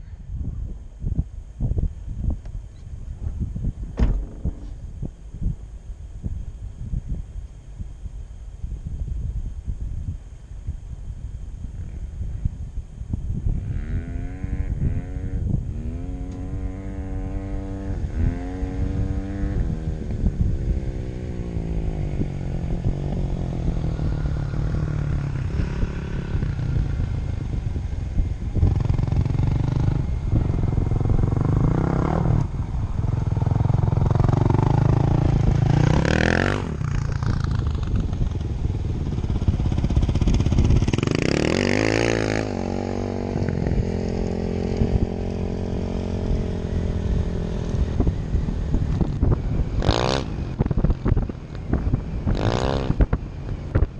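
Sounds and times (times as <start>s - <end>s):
vehicle driving low rumble: 0.0s - 53.9s
dirt bike engine revving: 13.6s - 27.8s, 28.5s - 53.2s.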